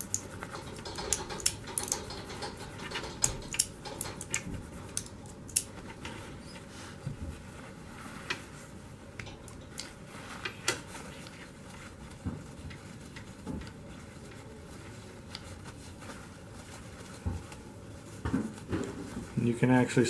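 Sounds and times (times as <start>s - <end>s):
light metal clicks and taps: 0.0s - 5.7s
paper towel crinkling and rubbing: 4.5s - 20.0s.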